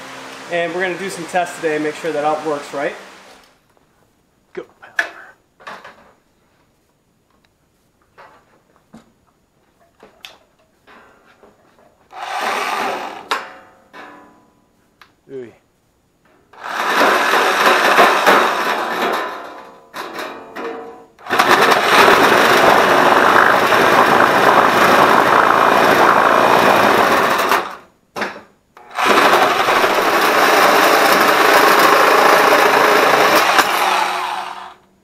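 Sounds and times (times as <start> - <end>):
electric cutter cutting metal sheet: 12.1 - 13.4, 16.6 - 19.4, 21.2 - 27.8, 28.8 - 34.8.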